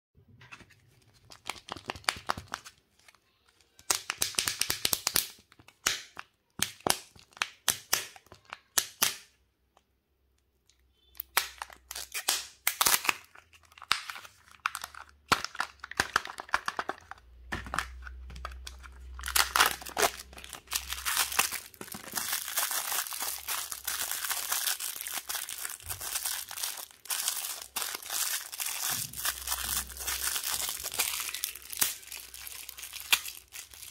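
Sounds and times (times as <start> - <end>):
plastic wrapper crinkling and tearing: 0.6 - 9.1, 11.2 - 33.9.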